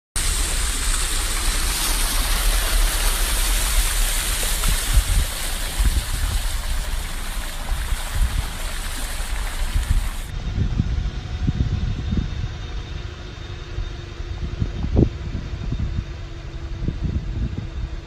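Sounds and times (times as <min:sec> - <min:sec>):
floodwater rushing and splashing: 0:00.2 - 0:10.3
heavy rain hissing: 0:00.2 - 0:10.3
vehicle rumbling through water: 0:00.2 - 0:10.3.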